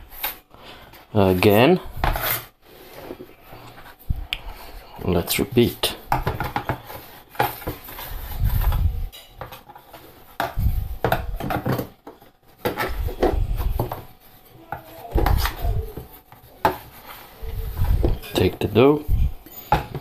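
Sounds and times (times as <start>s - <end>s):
metal scraper scraping plastic tray: 1.4s - 2.5s.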